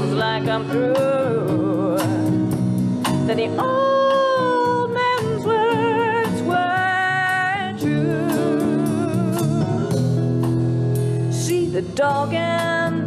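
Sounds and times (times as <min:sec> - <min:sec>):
person singing with vibrato: 0:00.0 - 0:02.5, 0:03.2 - 0:10.4
acoustic guitar: 0:00.0 - 0:13.0.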